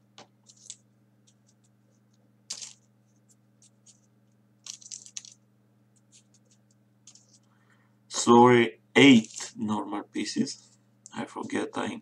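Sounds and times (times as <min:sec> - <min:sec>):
paper clicks and rustles: 0:00.4 - 0:01.8, 0:02.5 - 0:05.4, 0:06.0 - 0:07.5, 0:09.1 - 0:09.6.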